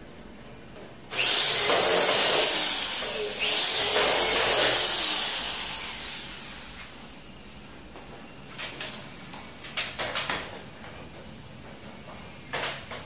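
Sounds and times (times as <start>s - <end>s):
electric drill running: 1.1s - 7.1s.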